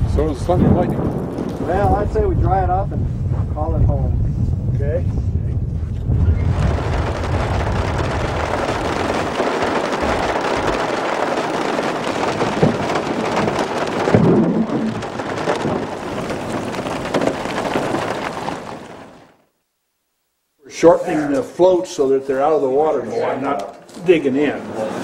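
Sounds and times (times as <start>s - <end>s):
low rumble: 0.0s - 19.1s
wind: 0.0s - 19.4s
steady rain: 0.0s - 22.6s.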